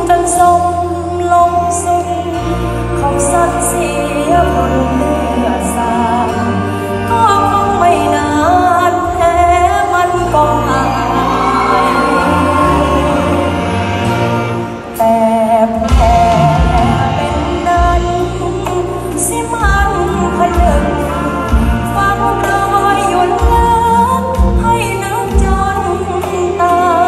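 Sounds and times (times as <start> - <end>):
live band music with bass line: 0.0 - 27.0
person singing: 7.2 - 27.0.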